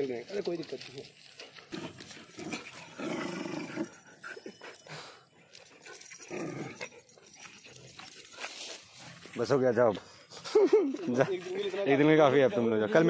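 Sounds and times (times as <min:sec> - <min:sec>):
dogs growling: 0:01.4 - 0:09.4.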